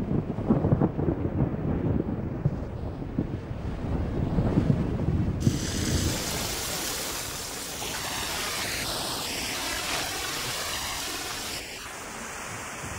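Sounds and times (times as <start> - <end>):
heavy rain on rocky ground: 0.0 - 2.6, 5.4 - 12.9.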